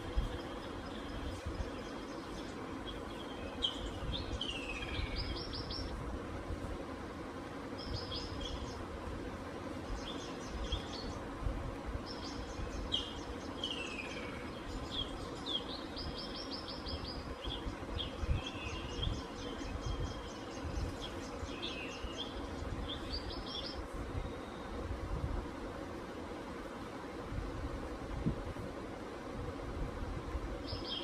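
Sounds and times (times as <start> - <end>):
birds chirping and trilling: 0.0 - 6.0, 7.7 - 8.9, 9.8 - 11.3, 12.0 - 24.7, 30.6 - 31.0.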